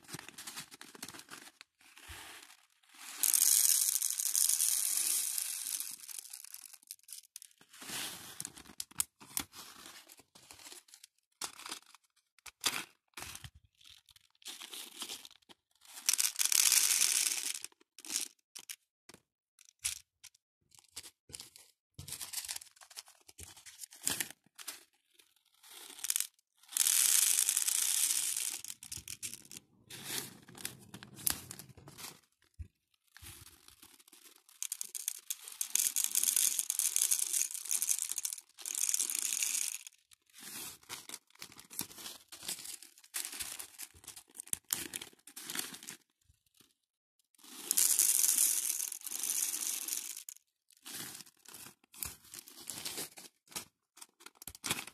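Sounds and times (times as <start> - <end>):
beads pouring into plastic box: 2.0 - 7.5, 15.9 - 18.8, 25.6 - 32.3, 33.2 - 46.0, 47.4 - 53.1.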